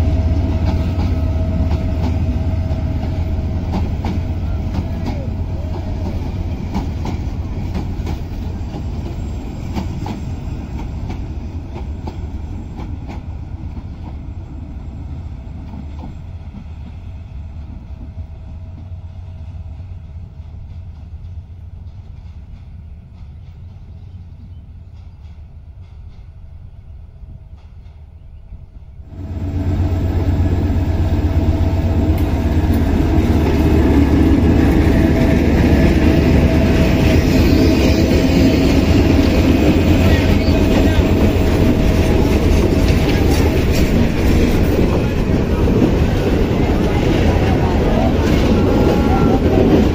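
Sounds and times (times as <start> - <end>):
train wheels clicking over rail joints: 0.0 - 14.5, 15.5 - 19.0, 19.6 - 26.7, 30.3 - 49.9
train low rumble: 0.0 - 49.9.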